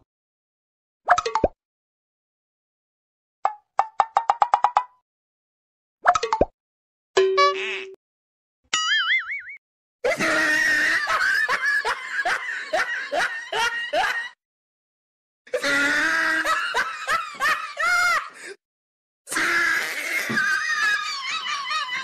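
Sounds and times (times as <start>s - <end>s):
person laughing: 10.0s - 14.4s, 15.5s - 18.5s, 19.8s - 22.0s.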